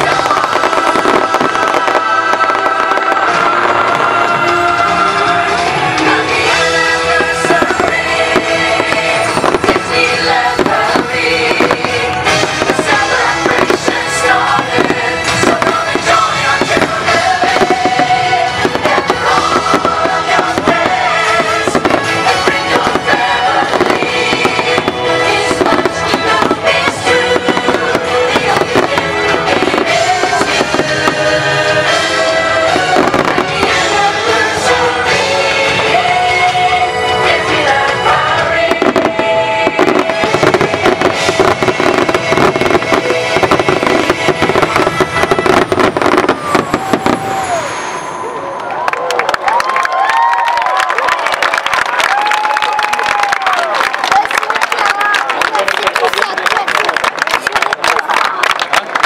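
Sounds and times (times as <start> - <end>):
loud music: 0.0 - 47.9
fireworks bursting and crackling: 0.0 - 59.0.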